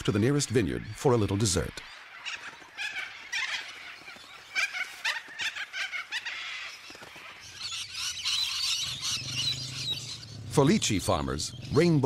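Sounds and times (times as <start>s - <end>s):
parrots squawking: 1.5s - 10.6s.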